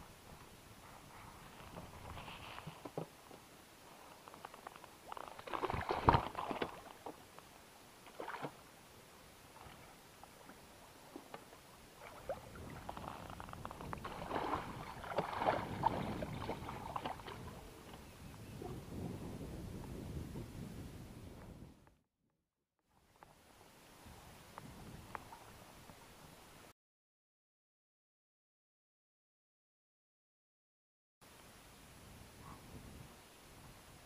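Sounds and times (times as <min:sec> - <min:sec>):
water splashing and sloshing: 0:04.0 - 0:07.4, 0:08.0 - 0:08.7, 0:09.4 - 0:18.0.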